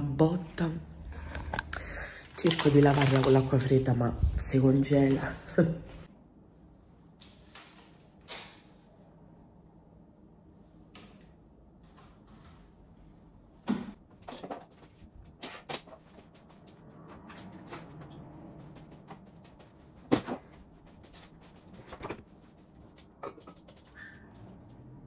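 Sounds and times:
knocks and clacks of household items: 13.7 - 16.4, 17.1 - 20.6, 23.0 - 24.0.

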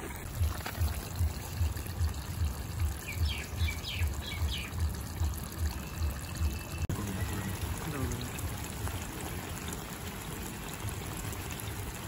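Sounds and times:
bird chirping: 3.0 - 4.8.

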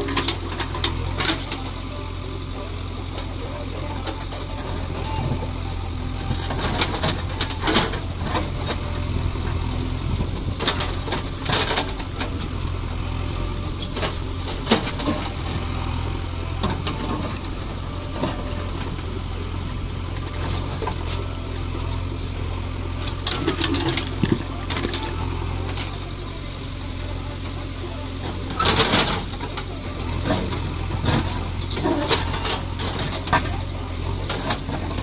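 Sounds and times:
backhoe diesel engine running: 0.0 - 35.0.

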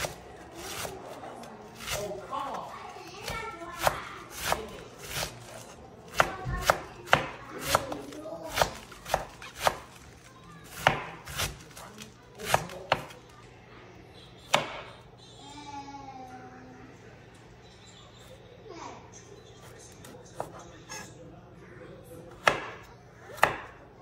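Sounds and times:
knife slicing cabbage: 0.0 - 13.2.

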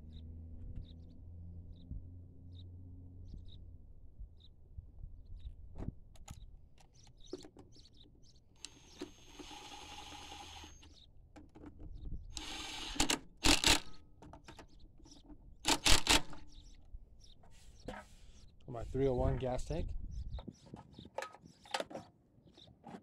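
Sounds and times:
cordless drill whirring: 8.6 - 11.0, 12.3 - 14.0, 15.7 - 16.4
nuts clicking while threaded: 8.6 - 16.4.

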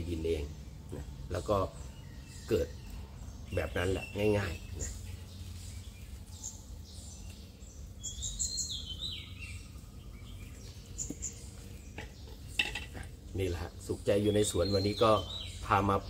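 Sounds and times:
bird chirping: 0.0 - 16.0
low background hum: 0.0 - 16.0.

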